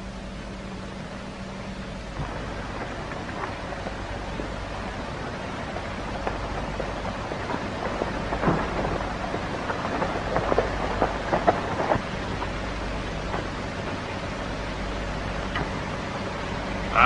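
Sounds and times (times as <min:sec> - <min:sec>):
film soundtrack hiss and crackle: 0:00.0 - 0:17.0
clicks and pops: 0:15.4 - 0:15.8.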